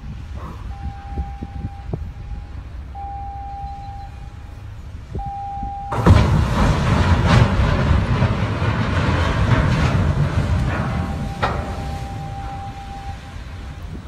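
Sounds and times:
ship's horn blasts: 0:00.0 - 0:07.4, 0:10.5 - 0:14.0
ships colliding: 0:00.0 - 0:14.0.

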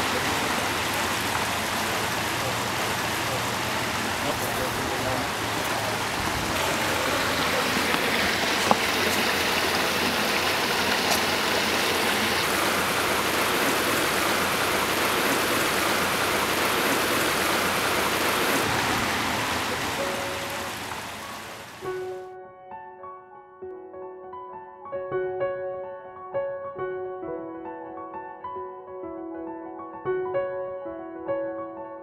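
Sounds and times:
stream flowing over rocks: 0:00.0 - 0:22.2.

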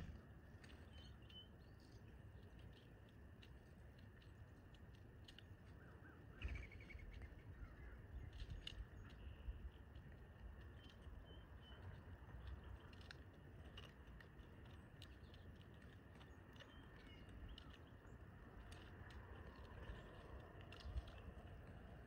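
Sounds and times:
low steady rumble: 0:00.0 - 0:22.0
light ticks: 0:00.6 - 0:05.9, 0:08.3 - 0:22.0
bird chirps: 0:00.8 - 0:01.9, 0:06.4 - 0:07.8.

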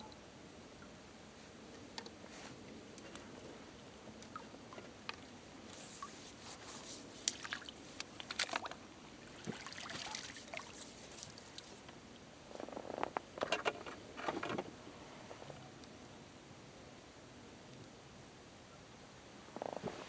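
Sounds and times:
water splashes and drips: 0:04.2 - 0:12.0.

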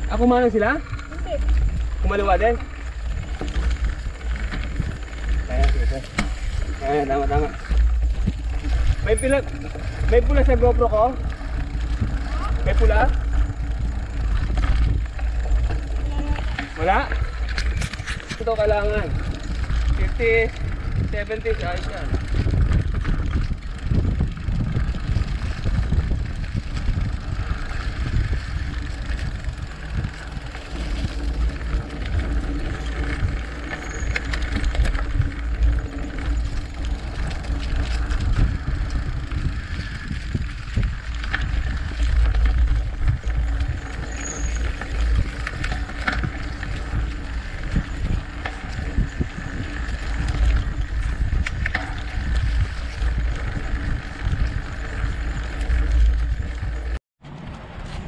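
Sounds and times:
bike knocking and rattling: 0:00.0 - 0:58.0
tyres crunching over dirt: 0:00.0 - 0:58.0
wind rumbling on microphone: 0:00.0 - 0:58.0.

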